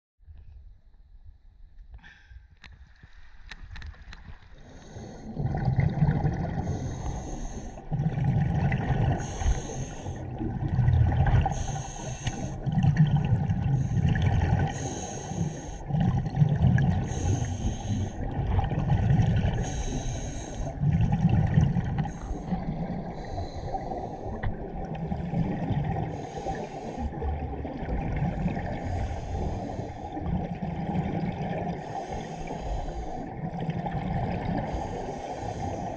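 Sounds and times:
exhaust bubbles rumbling: 4.6 - 35.9
regulator hiss on inhale: 6.6 - 7.8, 9.2 - 10.3, 11.5 - 12.6, 14.7 - 15.9, 17.0 - 18.2, 19.6 - 20.8, 22.0 - 24.5, 26.1 - 27.2, 28.8 - 30.2, 31.8 - 33.3, 34.7 - 35.9.

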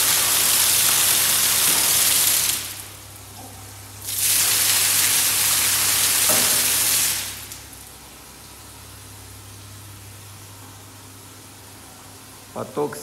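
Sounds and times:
heavy water pouring from bucket: 0.0 - 3.0, 4.0 - 7.6.

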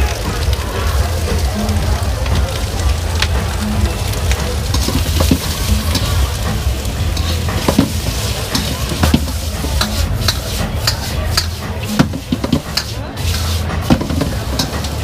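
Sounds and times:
vegetables sizzling in a wok: 0.0 - 15.0
metal spatula scraping a pan: 4.7 - 6.4, 7.1 - 15.0.

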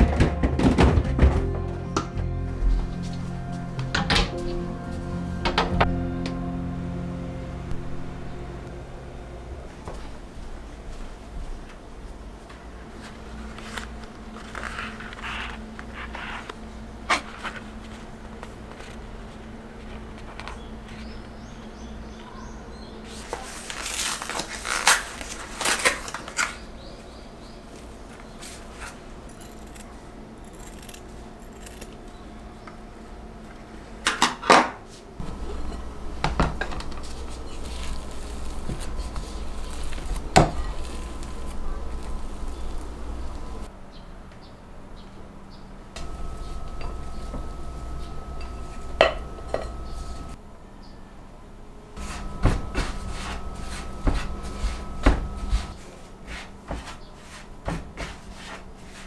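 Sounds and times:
paper package rustling: 13.3 - 16.5, 23.2 - 26.6, 36.6 - 43.7.

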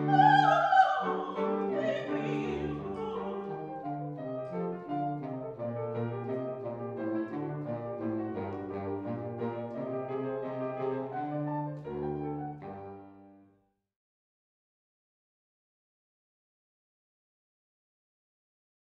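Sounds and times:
saxophone long notes: 0.0 - 4.1
piano playing: 0.0 - 13.4.

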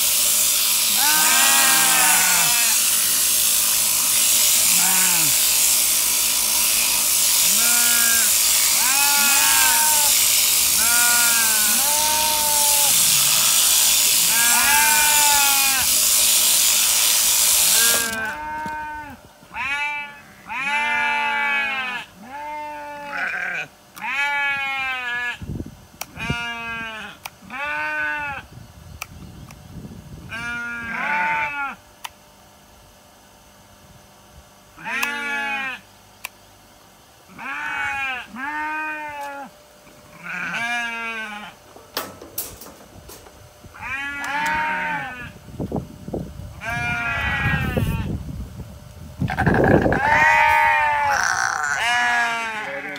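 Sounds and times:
electric shearing handpiece hissing: 0.0 - 19.2, 37.3 - 48.3, 49.1 - 52.9
sheep bleating: 1.0 - 3.1, 4.6 - 5.6, 7.4 - 16.0, 17.6 - 25.4, 34.8 - 35.8, 37.3 - 39.5, 40.1 - 41.6, 43.8 - 45.4, 49.3 - 52.9.

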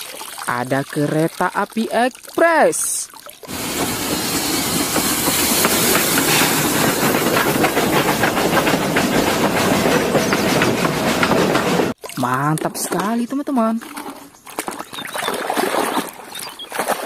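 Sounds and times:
steam hissing: 3.5 - 11.9
steam locomotive running: 3.5 - 12.0
wheels clicking over rail joints: 3.5 - 12.0.

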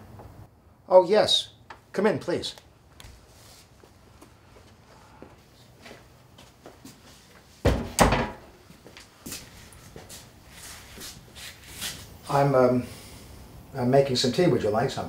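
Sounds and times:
door closing with heavy thumps: 7.7 - 8.5.

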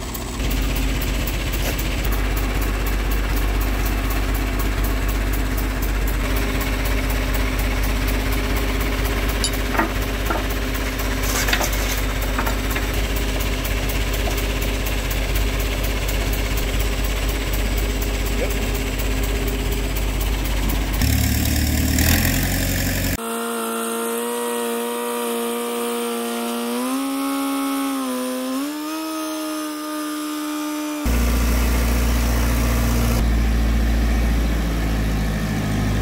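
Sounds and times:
crane engine idling: 0.0 - 23.2
metal shackle clinks: 9.4 - 9.9.

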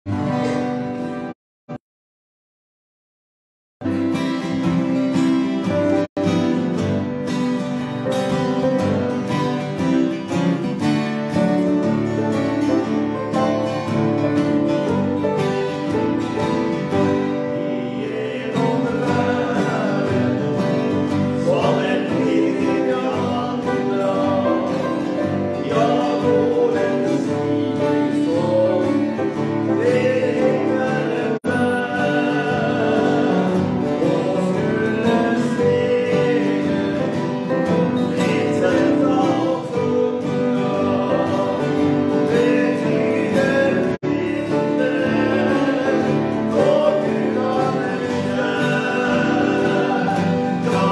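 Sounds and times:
acoustic guitars playing: 0.1 - 1.4, 3.8 - 50.9
men singing: 12.3 - 50.9.

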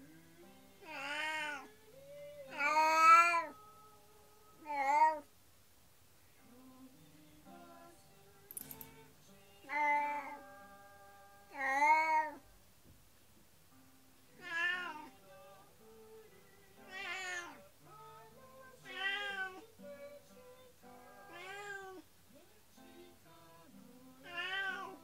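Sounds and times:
cat meowing loudly: 14.4 - 15.1, 16.9 - 17.6, 21.3 - 22.0, 24.3 - 25.0.

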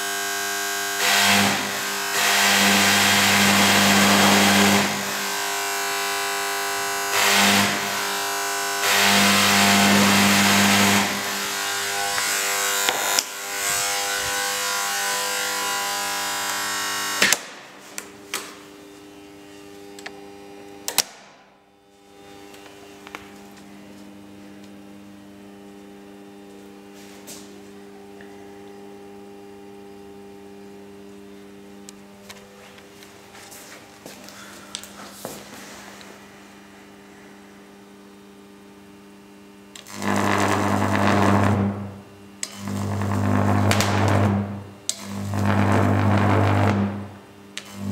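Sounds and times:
loud harsh electrical buzz: 0.0 - 47.9
sharp electrical clicks: 16.4 - 18.6, 19.9 - 21.5, 39.7 - 47.9.

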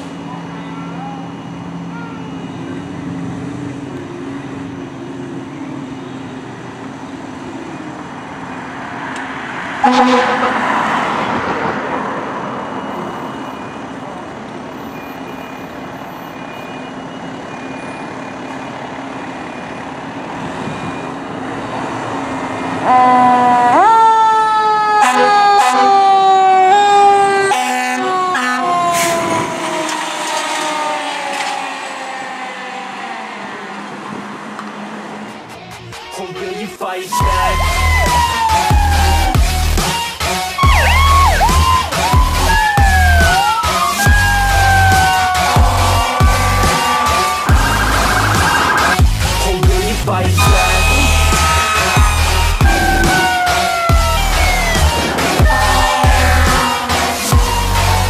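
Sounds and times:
loud horn blast: 9.8 - 11.8, 22.7 - 24.0, 24.9 - 26.8, 27.4 - 34.4, 44.1 - 49.6, 50.2 - 58.0
siren winding up: 28.8 - 33.1, 37.2 - 39.8, 40.6 - 49.1, 50.4 - 58.0
diesel engine running: 37.2 - 58.0.

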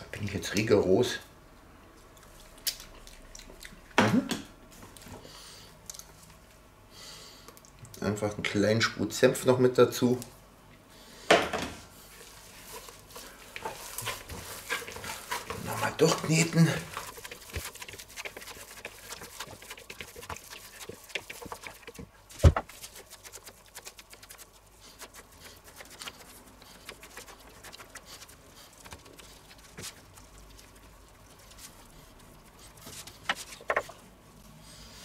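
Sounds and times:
hands squishing minced meat: 12.1 - 34.4.

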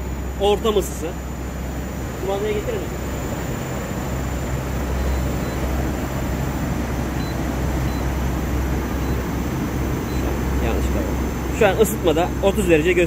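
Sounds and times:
air conditioner unit humming: 0.0 - 13.0.

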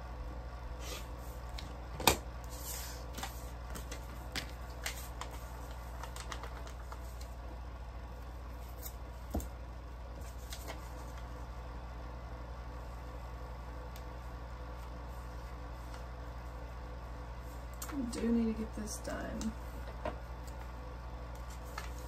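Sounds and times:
steady low hum: 0.0 - 22.0
paper rustling: 2.5 - 7.4, 10.2 - 11.4, 21.3 - 22.0.

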